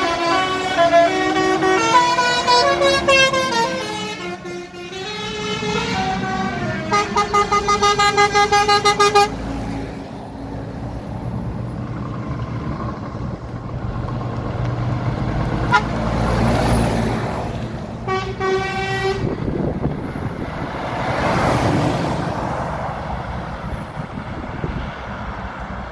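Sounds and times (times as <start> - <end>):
truck horn blast: 0.0 - 9.5, 15.6 - 16.2, 18.0 - 19.5
trucks passing: 0.0 - 25.9.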